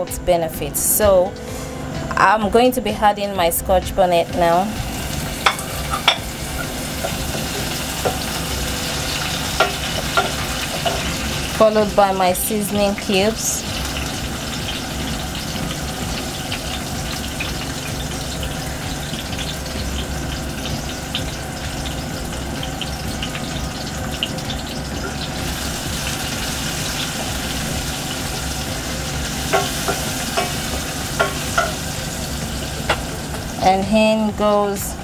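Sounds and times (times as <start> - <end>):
frying in hot oil: 4.2 - 35.0
wooden spoon knocking pan: 29.5 - 31.8.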